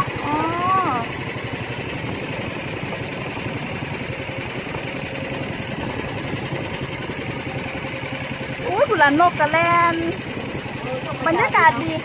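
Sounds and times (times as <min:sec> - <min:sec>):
small boat engine pulsing: 0:00.0 - 0:12.0.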